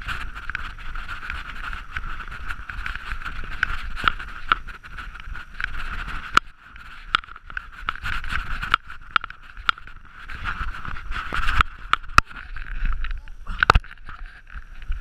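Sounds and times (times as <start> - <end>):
bike rattling over bumps: 0.0 - 15.0
bike tyres rolling whirr: 0.0 - 15.0.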